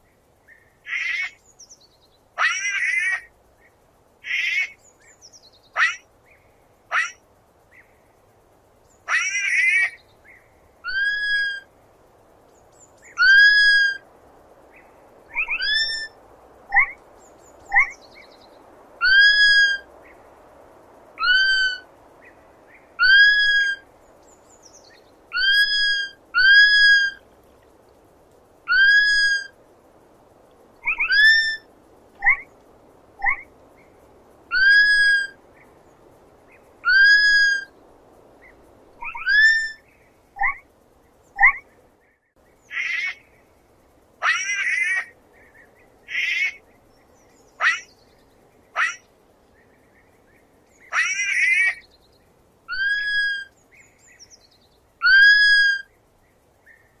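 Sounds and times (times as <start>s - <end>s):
faint steady hiss: 0.0s - 57.0s
sloth whistled squeaks: 15.4s - 16.1s, 30.8s - 31.6s, 39.0s - 39.8s, 52.7s - 53.5s, 55.0s - 55.9s.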